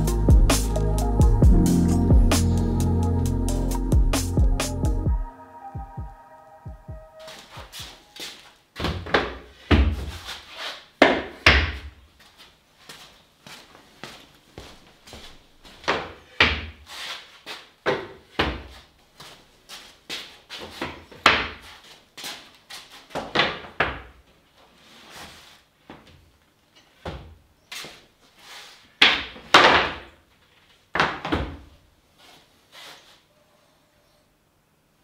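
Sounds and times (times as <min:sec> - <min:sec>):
wooden boards knocking together: 0:29.0 - 0:30.1.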